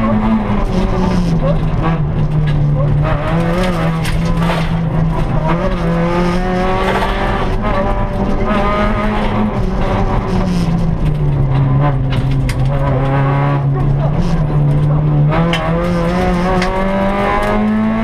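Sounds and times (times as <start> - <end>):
car engine revving: 0.0 - 18.0
road and tyre noise: 0.0 - 18.0.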